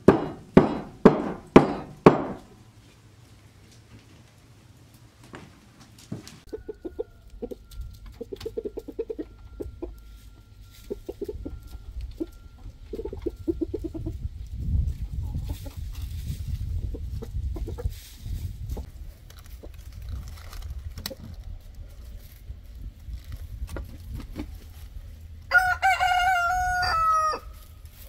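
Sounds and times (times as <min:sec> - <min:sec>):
hens clucking: 0:06.4 - 0:18.9, 0:19.5 - 0:19.8, 0:23.5 - 0:28.0
low rumbling noise: 0:08.9 - 0:28.0.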